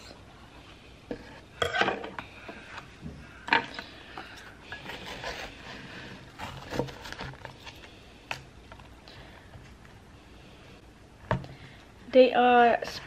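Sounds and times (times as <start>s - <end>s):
packaging rustling and crinkling: 4.8s - 7.9s.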